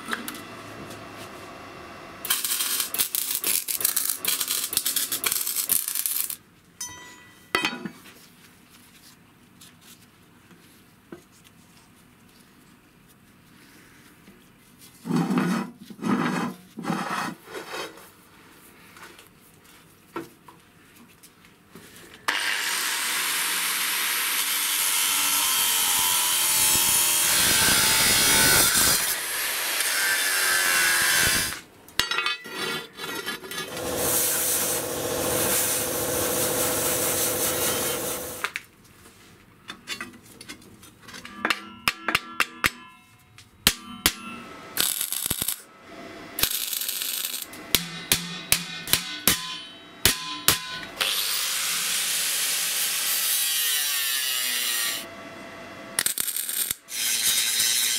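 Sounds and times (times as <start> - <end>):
power tool grinding metal: 22.3 - 31.6, 33.5 - 38.4, 51.0 - 55.1, 56.0 - 57.9.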